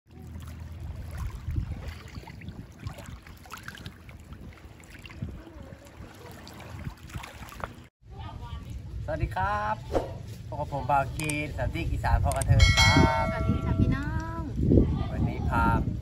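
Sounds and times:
small splashes: 0.1s - 7.9s
continuous low rumble: 0.1s - 15.2s
seawater lapping on shore: 0.1s - 16.0s.

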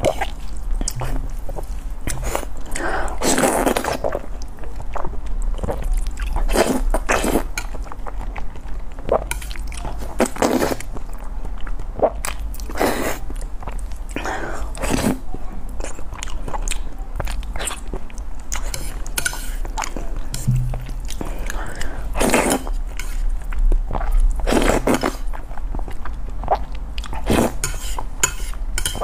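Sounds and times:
person chewing: 0.0s - 15.2s, 15.8s - 29.0s
person slurping noodles: 0.9s - 4.0s.

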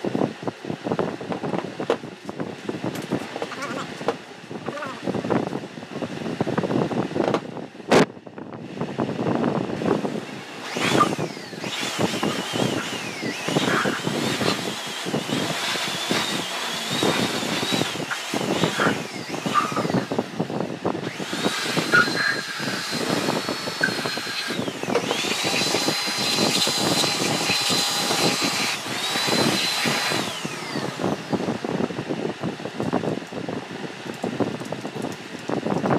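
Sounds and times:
rough rushing noise: 9.7s - 32.9s
small electric motor whining: 9.8s - 33.0s.

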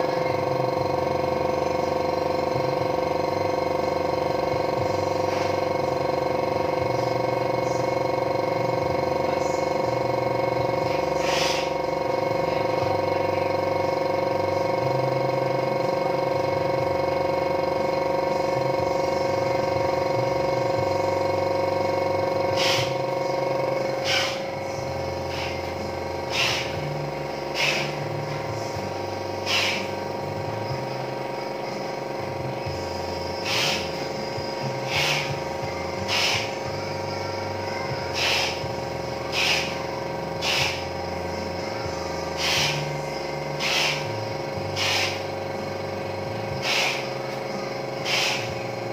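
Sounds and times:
air compressor motor hum: 0.0s - 48.9s
short air hissing bursts: 11.2s - 11.8s, 22.6s - 23.0s, 24.0s - 24.5s, 26.3s - 26.9s, 27.5s - 28.0s, 29.4s - 29.9s, 33.4s - 34.1s, 34.8s - 35.4s, 36.0s - 36.6s, 38.1s - 38.6s, 39.3s - 39.8s, 40.4s - 41.0s, 42.4s - 43.0s, 43.6s - 45.3s, 46.6s - 47.2s, 48.0s - 48.6s.

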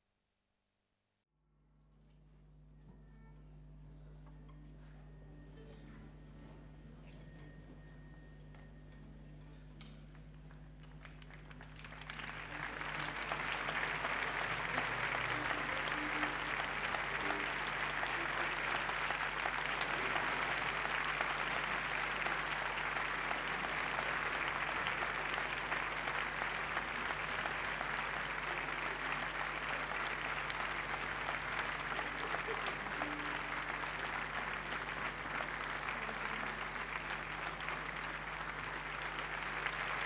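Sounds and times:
large audience applauding: 10.4s - 40.0s.

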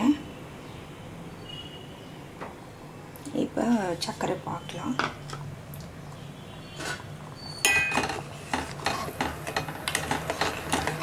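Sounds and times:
metal spoon scraping pot: 6.7s - 11.0s.

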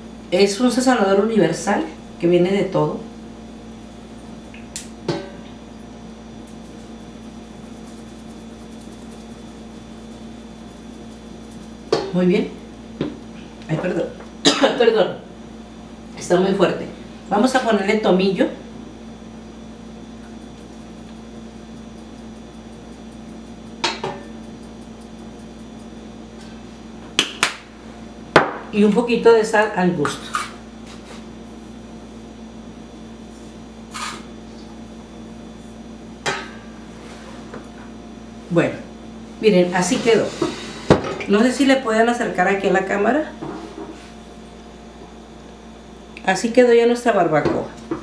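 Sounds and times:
steady low hum: 0.0s - 48.0s
seasoning shaker rattling: 6.6s - 11.8s.

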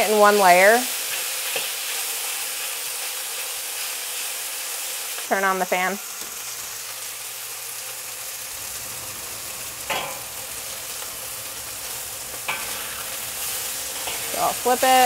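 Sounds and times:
chicken sizzling in oil: 0.0s - 15.0s
range hood fan humming: 5.3s - 15.0s.

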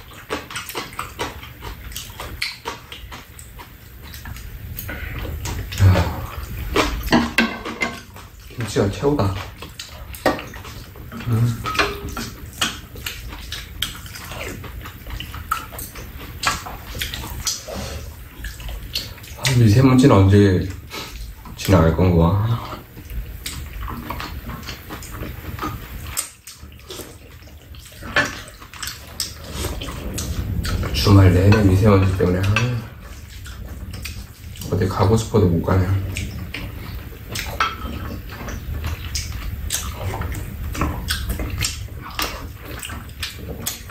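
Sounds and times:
wet chewing and slurping: 0.0s - 43.9s
utensils clicking against bowls: 6.8s - 14.6s.

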